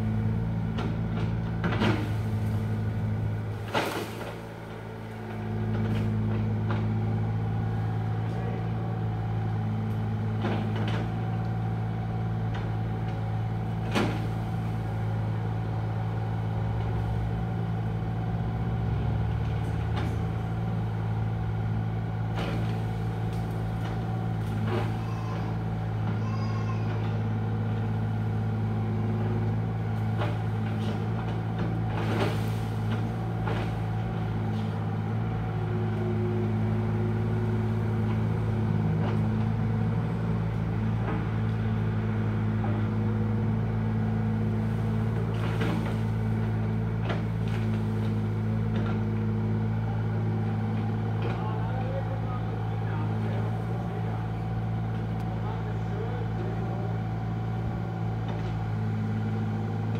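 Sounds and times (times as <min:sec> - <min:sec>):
diesel engine running: 0:00.0 - 0:59.9
sharp knocks and cracks: 0:03.5 - 0:07.0, 0:29.2 - 0:35.1, 0:44.6 - 0:49.3.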